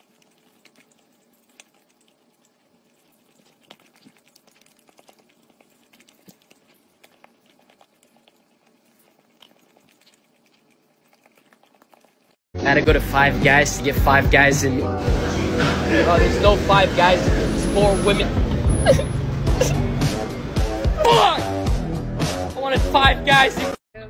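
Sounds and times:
dog licking: 0:00.0 - 0:12.4.

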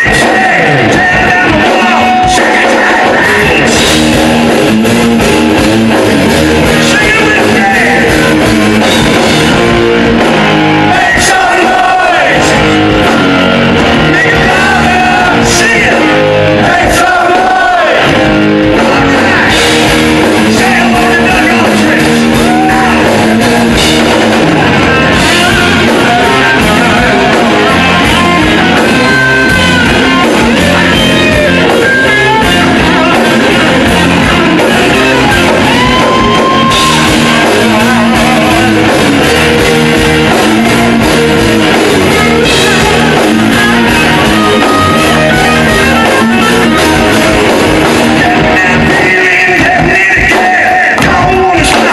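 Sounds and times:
person singing: 0:00.0 - 0:04.0, 0:14.0 - 0:23.8, 0:24.6 - 0:51.9
bass guitar: 0:00.0 - 0:51.9
distorted electric guitars: 0:00.0 - 0:51.9
drum kit: 0:00.0 - 0:51.9.

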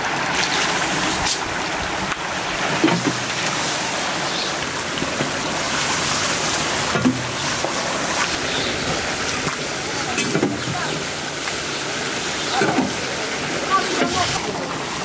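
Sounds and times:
curry sizzling in a pan: 0:03.1 - 0:14.4.

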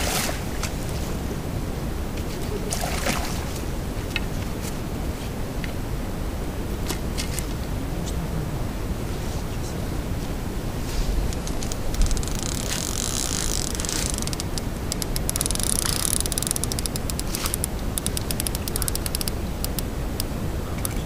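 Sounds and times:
wind rumbling on microphone: 0:00.0 - 0:21.0
fishing reel clicking: 0:11.4 - 0:21.0.

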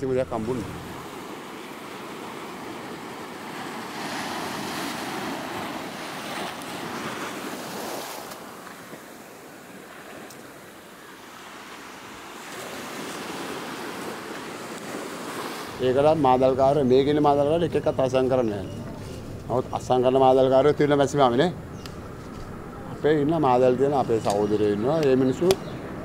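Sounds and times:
wind: 0:00.0 - 0:26.0
waves washing on sandy beach: 0:00.3 - 0:26.0.

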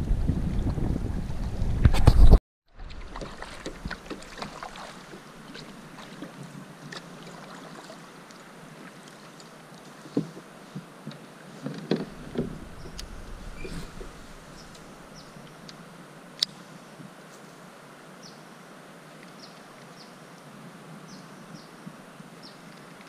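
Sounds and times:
paddle strokes in water: 0:02.7 - 0:15.8
paddle knocking against hull: 0:11.7 - 0:15.3.

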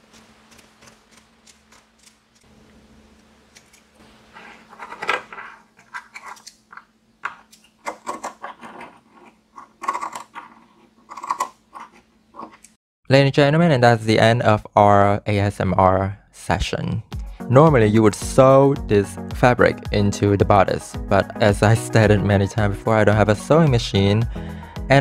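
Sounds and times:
scissors snipping fabric: 0:00.0 - 0:02.5.

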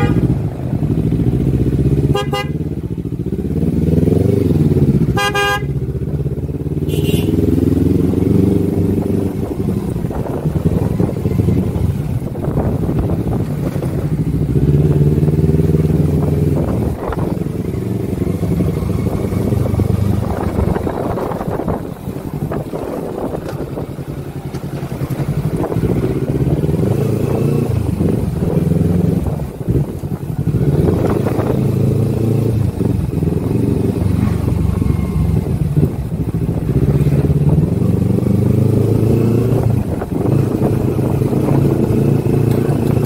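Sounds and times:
vehicle horn honks: 0:00.0 - 0:00.3, 0:02.0 - 0:02.6, 0:05.1 - 0:05.8, 0:06.8 - 0:07.5
motorcycle engine revving: 0:00.0 - 0:43.0.

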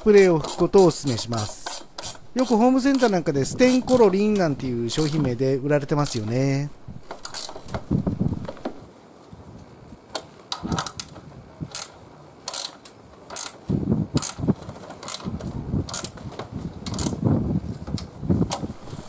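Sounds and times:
ratchet wrench clicking: 0:00.2 - 0:04.1, 0:05.0 - 0:05.2, 0:06.0 - 0:06.3, 0:07.1 - 0:07.8, 0:12.5 - 0:13.6, 0:14.2 - 0:14.4, 0:15.9 - 0:16.1, 0:16.9 - 0:17.2.

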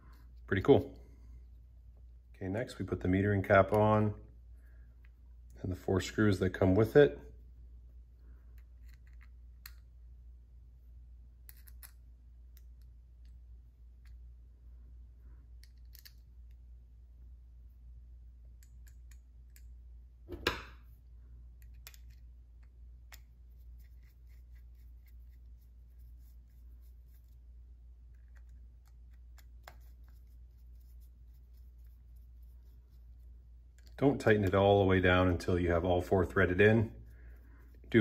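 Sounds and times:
steady low hum: 0:00.0 - 0:38.0
small metallic clicks and scrapes: 0:08.5 - 0:09.9, 0:11.4 - 0:13.4.

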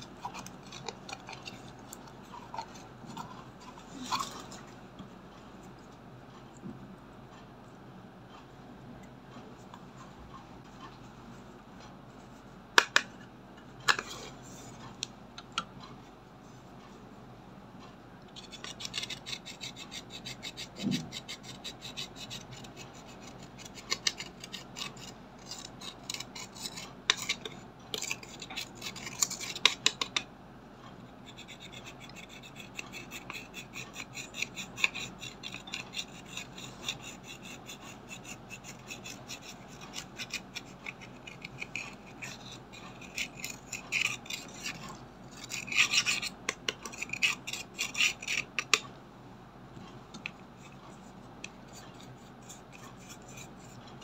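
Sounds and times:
metal tip scraping makeup powder: 0:00.0 - 0:03.4, 0:18.4 - 0:30.2, 0:31.2 - 0:48.8, 0:51.5 - 0:53.8.

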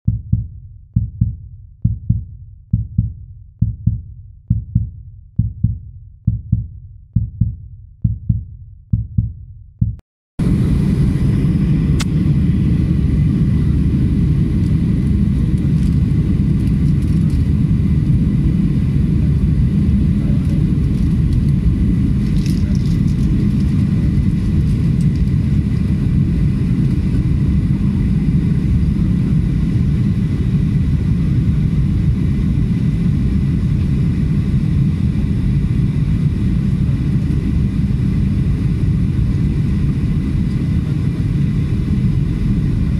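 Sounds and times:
deep thumps: 0:00.1 - 0:10.0
jet cabin engine noise: 0:10.4 - 0:42.9.

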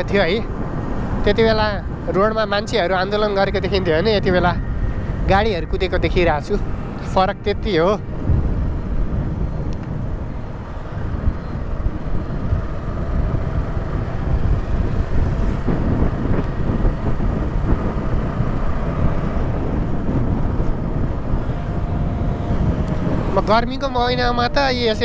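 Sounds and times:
motorcycle engine and wind rumble: 0:00.0 - 0:25.0.

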